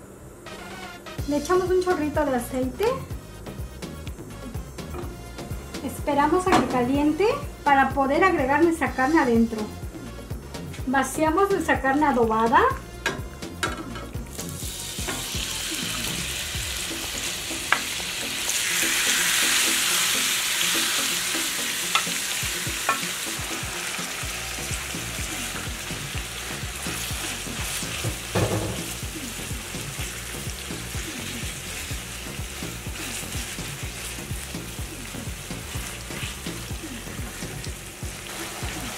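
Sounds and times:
spoon knocking against pan: 13.0 - 14.1, 22.8 - 23.1
meat sizzling in hot oil: 14.3 - 38.9.

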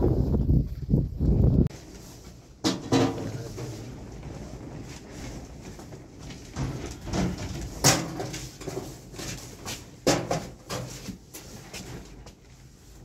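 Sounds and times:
sheet metal clanks and knocks: 2.6 - 3.7, 6.4 - 9.2, 10.0 - 11.0.

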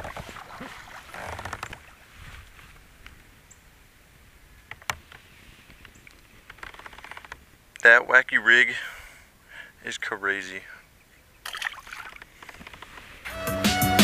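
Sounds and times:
gear rustling and knocking: 6.4 - 7.4.

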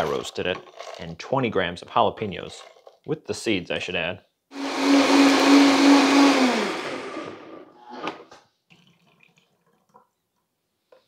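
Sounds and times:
thick puree pouring through funnel: 0.0 - 3.4, 8.7 - 10.2
blender running and spinning down: 4.5 - 8.2.

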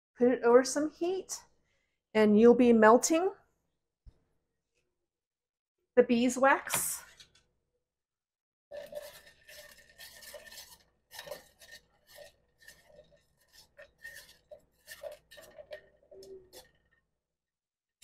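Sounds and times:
metal spoon scraping pot: 8.7 - 17.1.

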